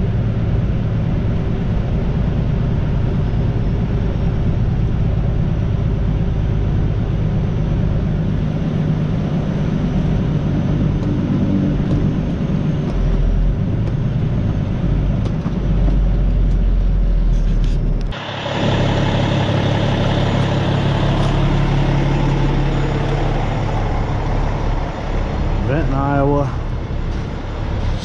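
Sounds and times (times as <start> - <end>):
truck engine humming: 0.0 - 28.0
road noise hiss: 16.3 - 28.0.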